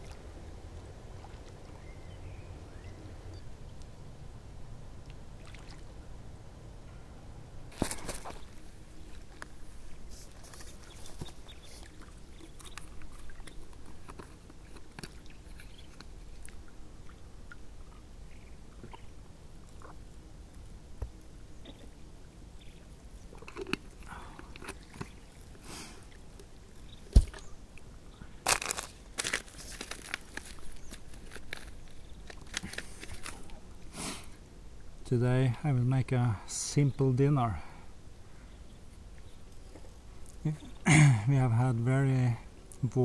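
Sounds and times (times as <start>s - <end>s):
rustling on foam mat: 28.5s - 33.5s.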